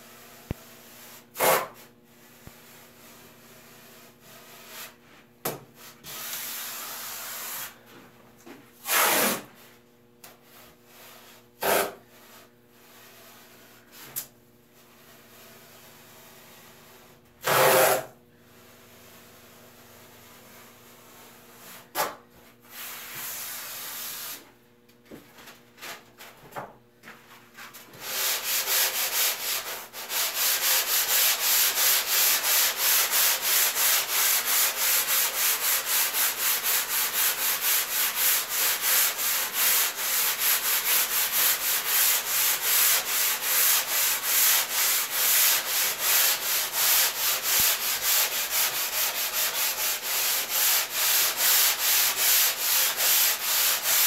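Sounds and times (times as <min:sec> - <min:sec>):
sanding block scraping foam: 0:10.5 - 0:13.9, 0:14.8 - 0:21.8, 0:28.0 - 0:54.0.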